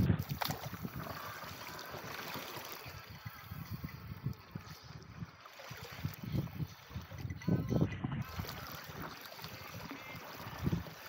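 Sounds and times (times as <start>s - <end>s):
water splashing against paddleboard: 0.0s - 11.0s.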